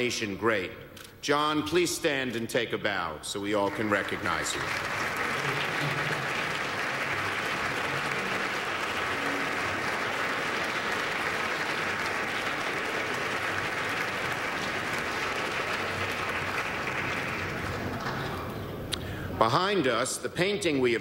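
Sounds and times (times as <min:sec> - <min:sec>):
audience applause: 0:03.6 - 0:18.9.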